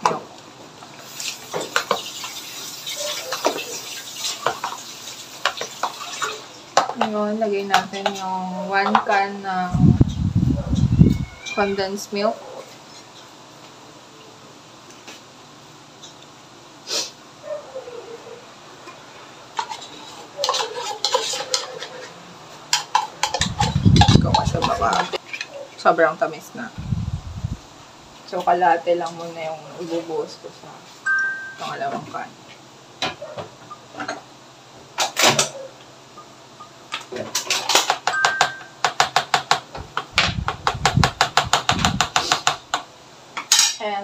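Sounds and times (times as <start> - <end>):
metal spoon scraping tin can: 19.6 - 22.2
spoons scraping a bowl: 19.6 - 25.5.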